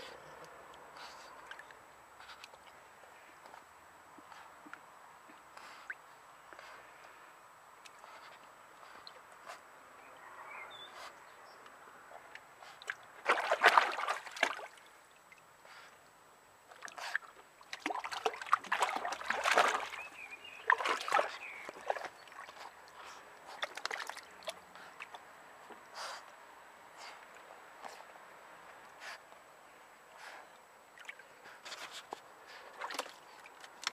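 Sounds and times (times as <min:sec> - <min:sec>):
dog splashing in water: 0:12.8 - 0:14.8, 0:16.8 - 0:22.7, 0:23.6 - 0:25.2, 0:31.0 - 0:33.7.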